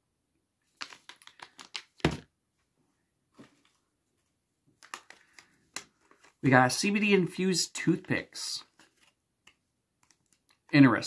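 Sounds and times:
packets clicking and rustling: 0.8 - 2.3, 4.8 - 6.4.

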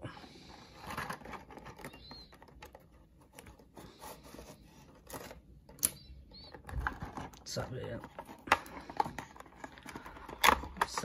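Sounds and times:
cardboard and plastic packaging scraping: 6.4 - 11.0.

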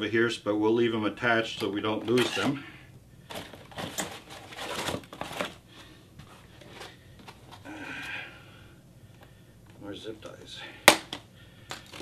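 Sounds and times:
plastic and foam wrapping rustling: 3.2 - 7.8, 11.7 - 12.0.

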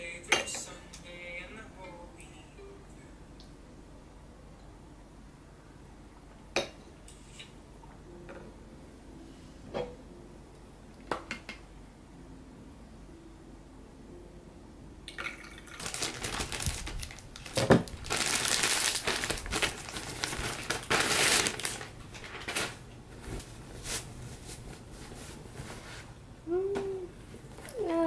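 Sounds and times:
fabric rustling and swishing: 22.4 - 26.2.

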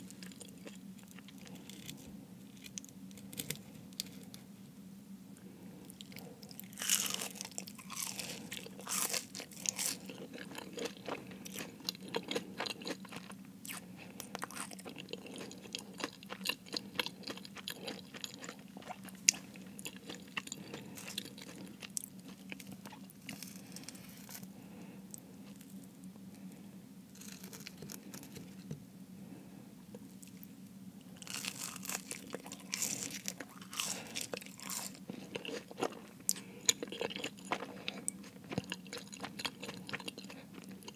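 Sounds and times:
chewing and crunching pastry: 0.0 - 4.5, 5.4 - 28.7, 30.0 - 40.9
crisp crunching: 6.0 - 24.5, 27.1 - 28.6, 31.2 - 40.9.

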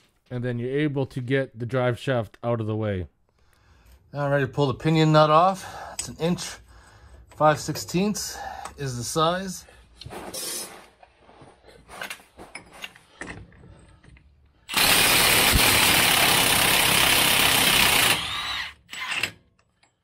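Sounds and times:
impact wrench running: 14.7 - 19.4.

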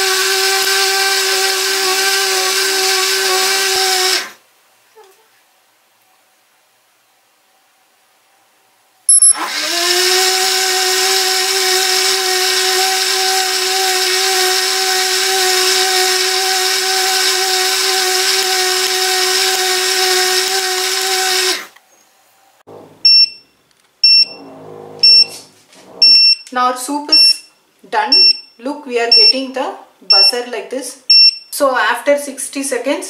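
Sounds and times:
soup maker blade motor: 0.0 - 4.4, 9.3 - 21.8
short electronic beep: 9.1 - 9.4, 23.0 - 24.4, 25.0 - 25.4, 26.0 - 26.5.

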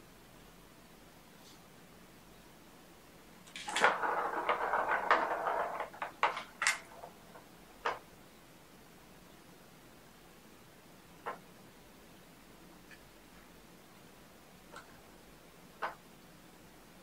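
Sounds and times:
plastic balls rattling in toy track: 3.5 - 7.2.

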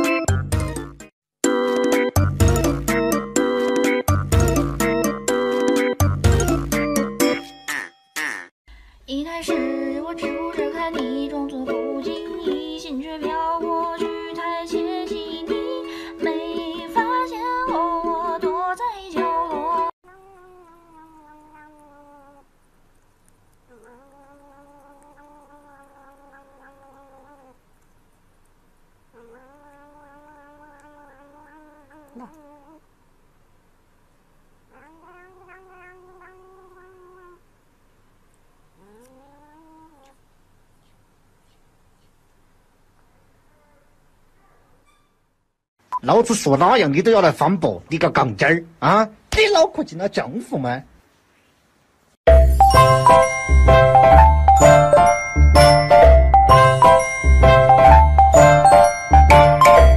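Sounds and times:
upbeat music with plucked strings: 0.0 - 7.4, 52.3 - 59.9
faint cat sound: 20.0 - 27.8, 29.1 - 32.9, 34.6 - 37.7, 38.7 - 42.2, 43.0 - 45.3
cat licking: 20.6 - 28.6.

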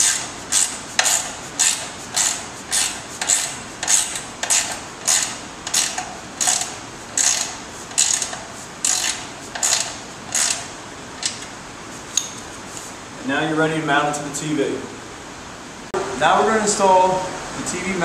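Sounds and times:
ratchet wrench clicking: 0.0 - 11.4.

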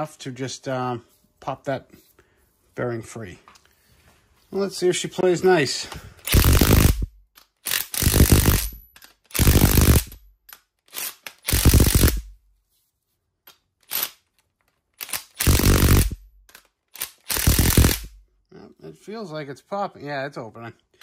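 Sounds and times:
impact wrench rattling bursts: 6.2 - 10.2, 10.9 - 12.3, 15.0 - 18.2.

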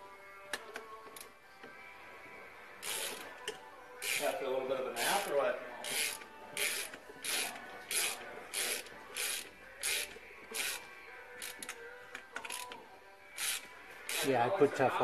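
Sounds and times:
socket ratchet clicking: 5.9 - 10.8, 11.4 - 12.8, 13.4 - 14.3.

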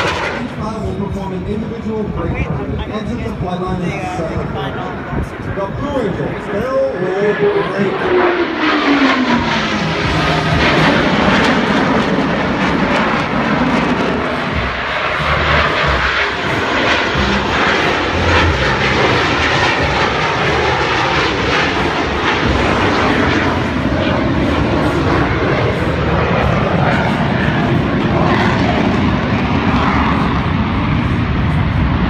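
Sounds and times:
jets flying past roaring: 0.0 - 32.0.

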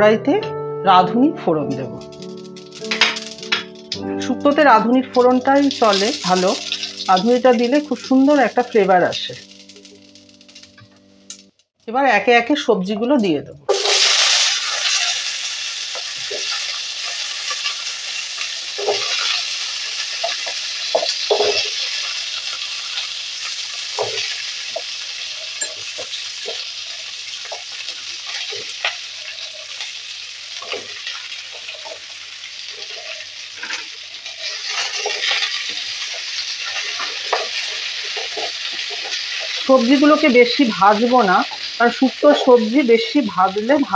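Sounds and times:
vegetables sizzling in hot oil: 1.2 - 11.6, 13.1 - 43.9
pieces knocking and clattering: 2.2 - 4.0, 20.2 - 21.8
spatula stirring in wok: 5.5 - 8.6, 13.7 - 39.7.

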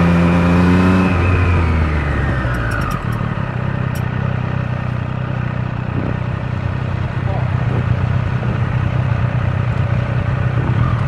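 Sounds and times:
motorcycle engine slowing: 2.0 - 7.2.

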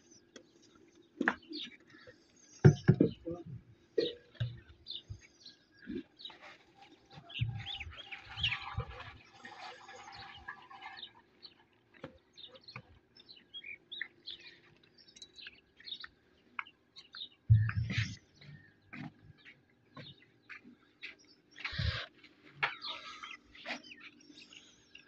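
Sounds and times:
small birds chirping: 0.0 - 25.0
low thuds: 17.5 - 18.2.

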